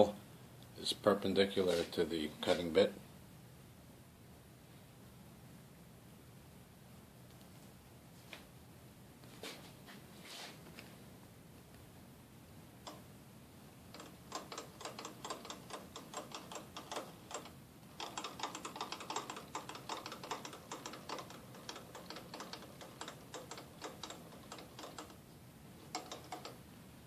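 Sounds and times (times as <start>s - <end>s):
rapid light clicking: 12.8s - 13.1s, 13.9s - 25.2s, 25.8s - 26.6s.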